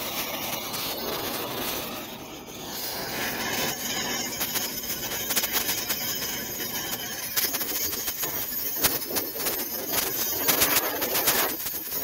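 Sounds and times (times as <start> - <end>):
cutting torch hissing: 2.6 - 5.7.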